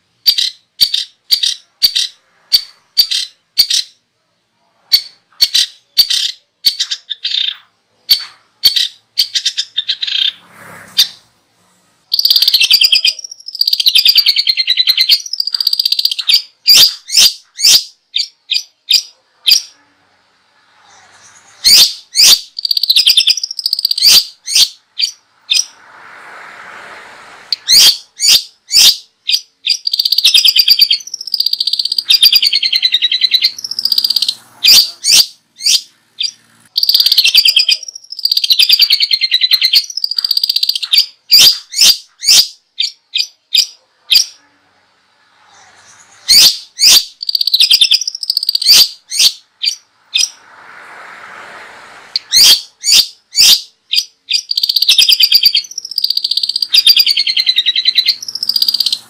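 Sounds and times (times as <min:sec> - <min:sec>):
songbird trilling: 0:12.1 - 0:19.7, 0:21.6 - 0:25.8, 0:27.6 - 0:44.3, 0:46.3 - 0:50.4, 0:52.2 - 0:59.0.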